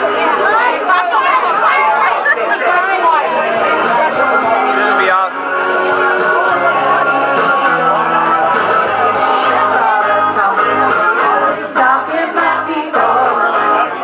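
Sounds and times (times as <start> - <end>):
guitar karaoke backing track: 0.0 - 14.0
women singing into microphones: 8.8 - 14.0.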